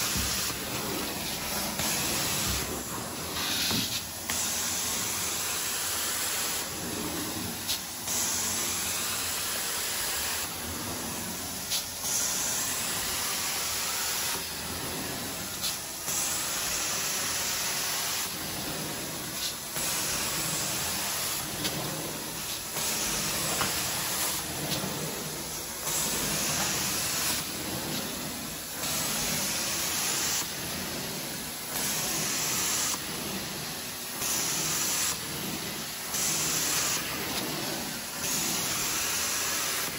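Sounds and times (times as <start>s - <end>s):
vacuum suction: 0.0s - 5.2s, 17.8s - 39.8s
spray hissing: 0.0s - 6.8s, 15.2s - 30.9s.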